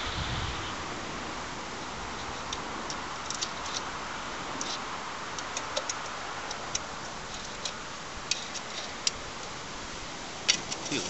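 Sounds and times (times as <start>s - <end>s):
steady background hiss: 0.0s - 11.0s
light clicks and ticks: 4.6s - 9.6s.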